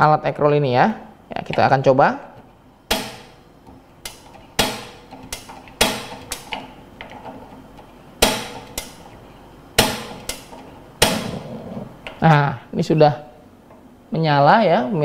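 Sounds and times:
gas knob clicking: 2.4s - 9.2s, 9.8s - 11.4s.

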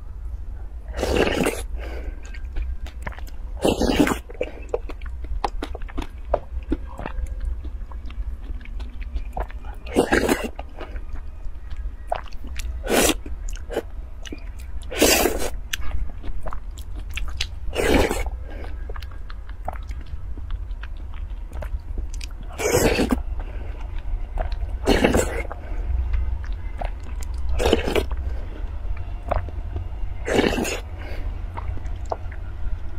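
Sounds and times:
person slurping: 3.6s - 4.7s, 14.9s - 15.6s, 17.7s - 18.3s, 22.5s - 23.2s, 24.8s - 25.6s, 30.2s - 30.9s.

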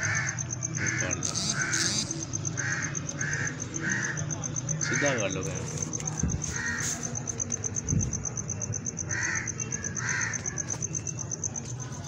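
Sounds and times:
crow cawing: 0.0s - 7.4s, 9.0s - 10.8s
cricket chirping: 0.0s - 12.0s.

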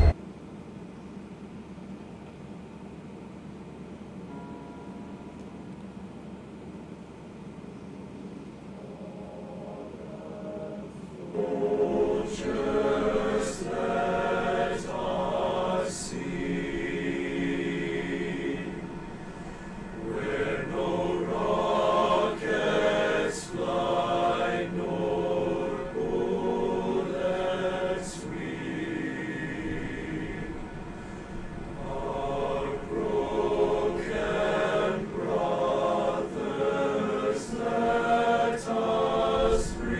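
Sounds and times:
choir singing slowly: 8.6s - 39.9s.

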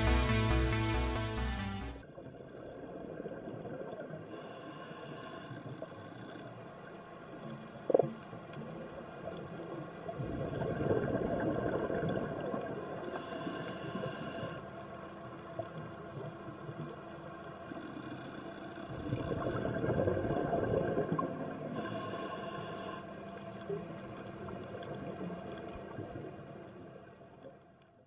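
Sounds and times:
scuba regulator inhale hiss: 4.3s - 5.7s, 13.1s - 14.6s, 21.7s - 23.1s
exhaled bubbles rumbling: 7.7s - 13.1s, 15.5s - 21.8s.

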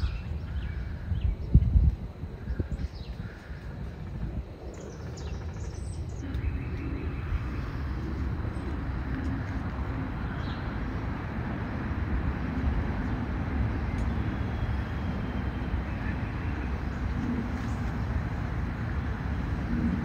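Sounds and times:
birds chirping: 0.0s - 20.0s
road vehicle rumble: 6.0s - 20.0s.

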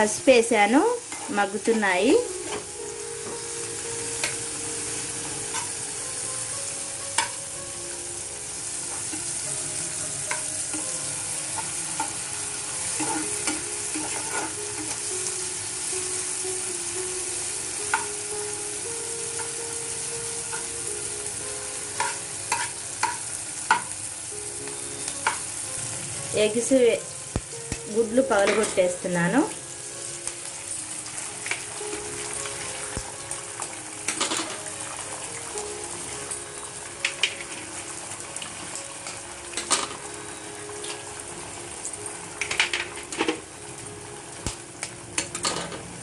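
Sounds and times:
vegetables sizzling in hot oil: 0.0s - 46.0s
spatula scraping a pan: 12.9s - 15.0s.

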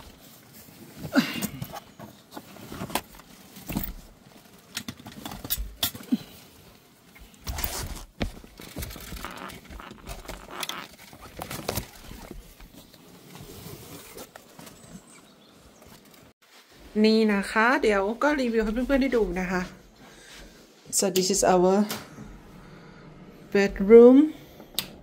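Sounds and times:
rustling: 0.0s - 20.8s.

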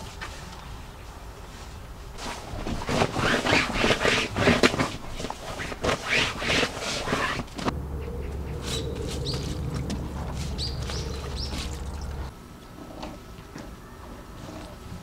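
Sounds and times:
bedding rustling and scraping: 1.5s - 12.3s
steady low hum: 6.7s - 13.2s.

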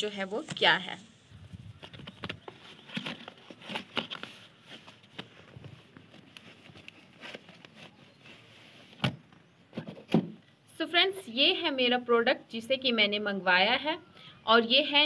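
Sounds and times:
cardboard box rustling and scraping: 2.4s - 9.0s.

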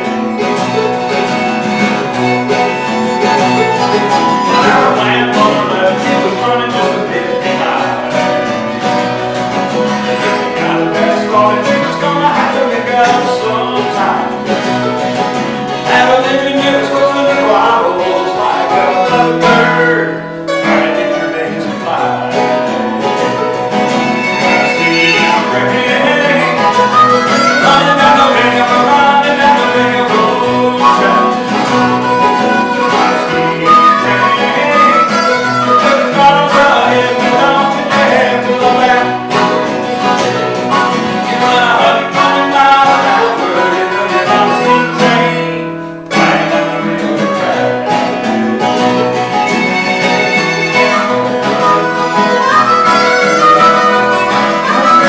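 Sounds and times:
harmonica: 0.0s - 55.0s
mandolin: 0.0s - 55.0s
strummed acoustic guitar: 0.0s - 55.0s.

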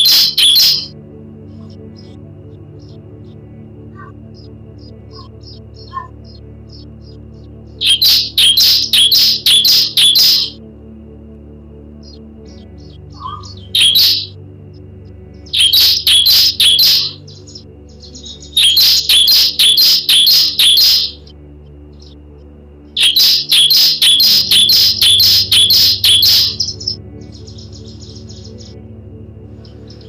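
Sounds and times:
bird singing sharp repeated notes: 0.0s - 0.9s, 3.9s - 10.6s, 12.0s - 14.4s, 15.4s - 21.3s, 23.0s - 28.8s.

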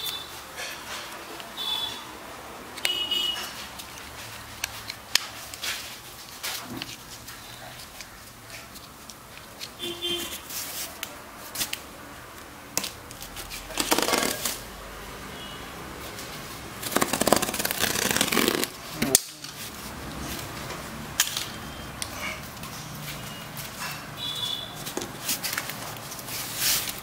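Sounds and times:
knife slicing packing tape: 12.8s - 14.6s, 16.8s - 19.5s.

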